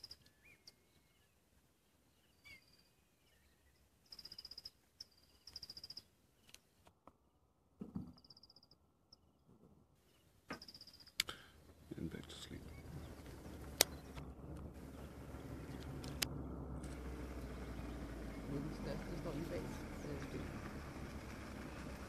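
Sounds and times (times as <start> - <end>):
whistled bird calls: 0.0 - 1.4, 2.1 - 6.1
high chirping trills: 2.2 - 6.5, 11.8 - 16.2.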